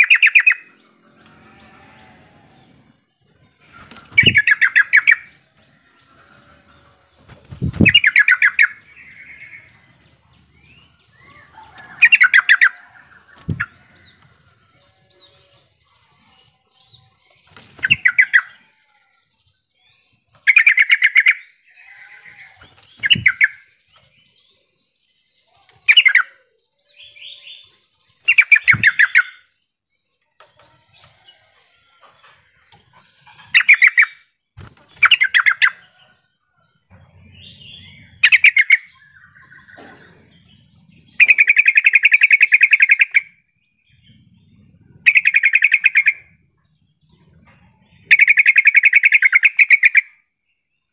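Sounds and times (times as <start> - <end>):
bird singing bubbling phrases: 0.0 - 0.7, 4.1 - 5.4, 7.6 - 10.8, 37.1 - 50.3.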